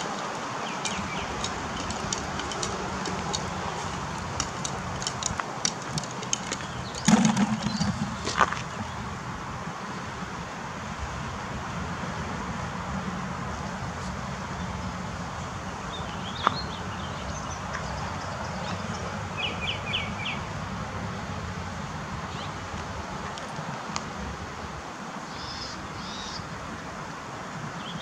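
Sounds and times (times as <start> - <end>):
low outdoor rush: 0.0 - 28.0
small birds chirping: 0.6 - 9.0.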